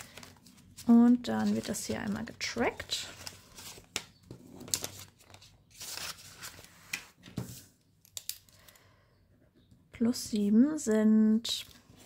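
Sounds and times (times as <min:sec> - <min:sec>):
paper rustling: 0:00.0 - 0:08.3.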